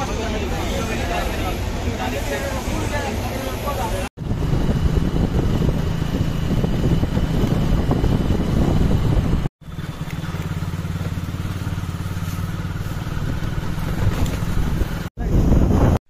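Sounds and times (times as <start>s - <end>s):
wind noise: 0.6s - 16.0s
motorcycle engine cruising: 4.2s - 16.0s.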